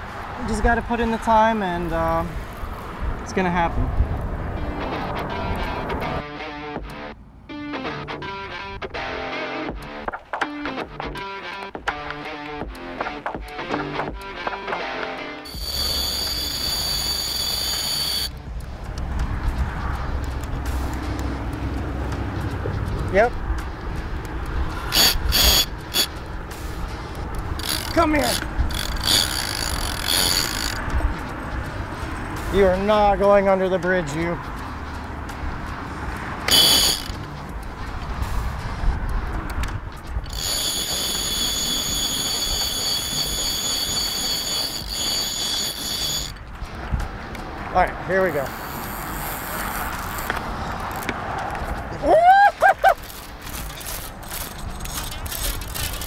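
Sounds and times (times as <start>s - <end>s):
wind on microphone: 2.2s - 6.2s
fishing reel drag screaming: 15.5s - 18.3s, 24.8s - 26.1s, 27.6s - 30.8s, 36.5s - 37.2s, 40.2s - 46.4s, 48.5s - 51.1s, 53.0s - 56.0s
high steady whine: 15.5s - 18.4s.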